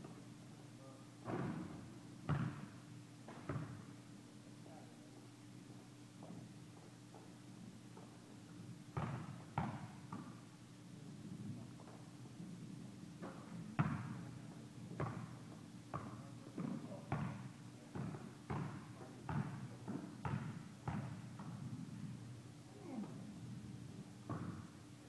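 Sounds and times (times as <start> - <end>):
basketball bouncing on gym floor: 1.3 - 2.7, 3.3 - 3.9, 9.0 - 10.4, 13.2 - 21.6, 24.2 - 24.7.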